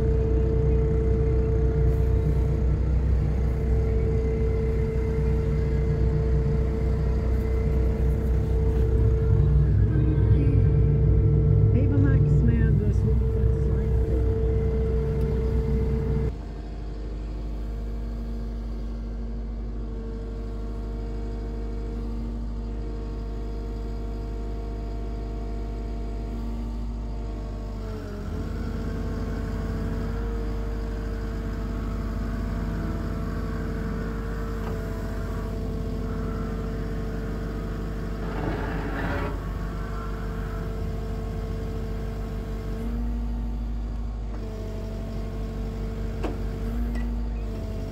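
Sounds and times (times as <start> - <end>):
diesel engine running: 0.0 - 47.9
hydraulic whine: 0.0 - 47.9.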